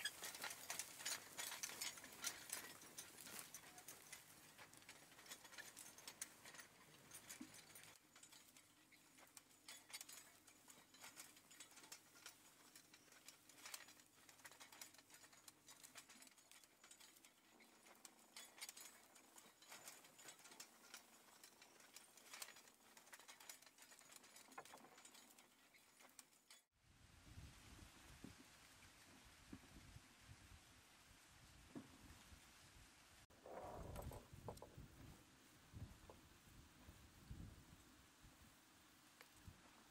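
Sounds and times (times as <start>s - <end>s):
light clicks and rustles: 0.0s - 26.7s, 33.7s - 37.4s, 39.0s - 39.9s.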